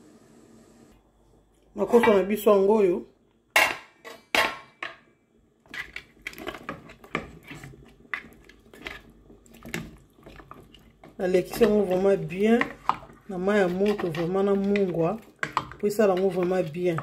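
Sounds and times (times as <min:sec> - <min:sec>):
spatula stirring in a pot: 0:05.6 - 0:17.0.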